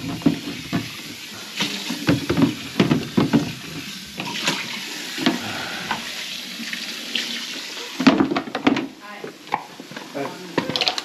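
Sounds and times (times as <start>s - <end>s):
knocks in sink drain: 0.0s - 1.0s, 2.0s - 3.9s, 8.0s - 9.0s.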